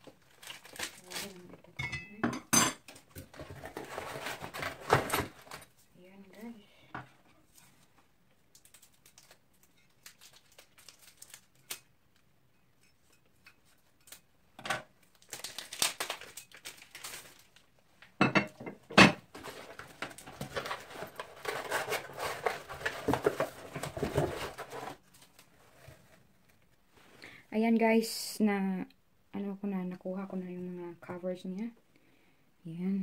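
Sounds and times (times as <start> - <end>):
plastic crinkling and rustling: 0.0 - 1.8, 2.9 - 5.8, 7.4 - 11.9, 14.9 - 18.2, 19.2 - 27.2.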